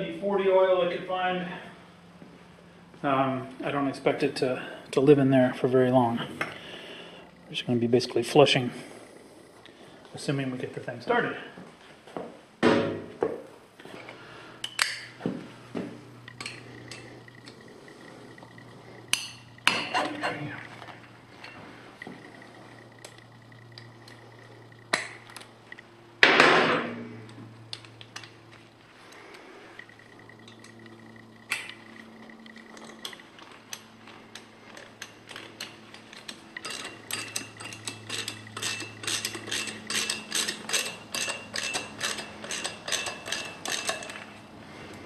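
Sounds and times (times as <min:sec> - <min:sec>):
ratchet wrench clicking: 0:29.8 - 0:44.3.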